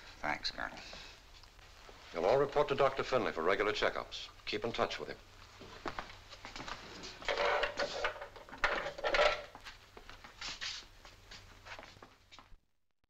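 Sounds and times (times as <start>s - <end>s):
footsteps on hard floor: 5.6s - 8.2s, 9.5s - 12.6s
jail cell door scraping and clanking: 7.2s - 9.5s.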